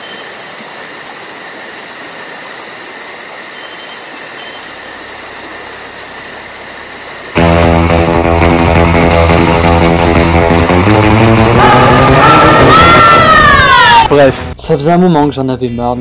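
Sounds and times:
crickets chirping: 0.0s - 7.4s
high insect buzz: 0.0s - 7.6s
rock music with electric guitar: 7.4s - 13.6s.

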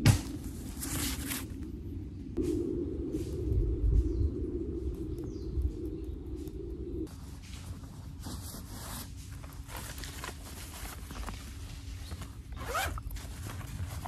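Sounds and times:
cloth and plastic rustling: 7.1s - 14.0s.

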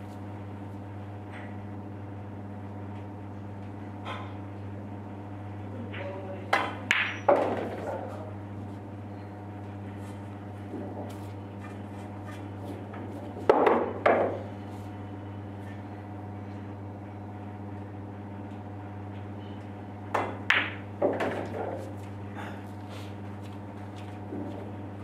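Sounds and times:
steady low hum: 0.0s - 25.0s
pool balls clacking: 6.0s - 8.4s, 10.6s - 14.5s, 20.1s - 22.0s.

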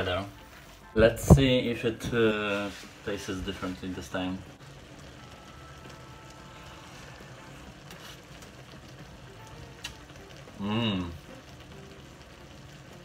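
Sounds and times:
faint crackling hiss: 0.0s - 13.0s
man humming: 10.6s - 11.2s.

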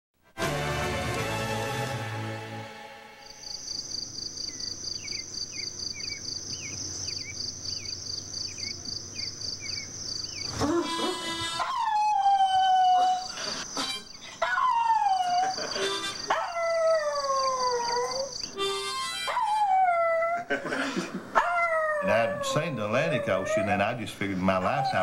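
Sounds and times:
bird chirping: 3.2s - 19.6s
dog howling: 10.5s - 13.4s, 14.4s - 18.4s, 19.0s - 20.5s, 21.4s - 25.0s.

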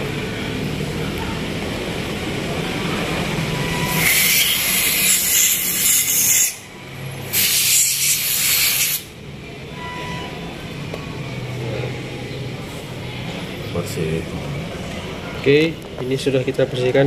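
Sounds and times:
aerosol spray hissing: 7.3s - 9.1s.

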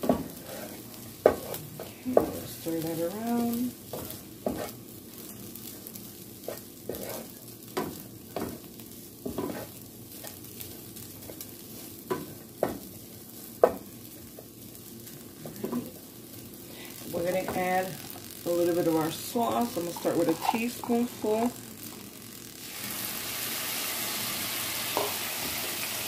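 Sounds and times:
wooden spatula stirring rice: 0.0s - 15.8s
frying sizzle: 0.0s - 26.0s.

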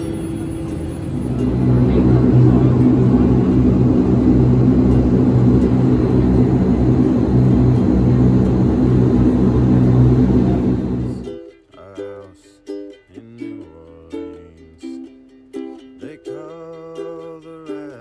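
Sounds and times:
low propeller hum: 0.0s - 11.3s
turboprop engines droning: 0.0s - 11.3s.

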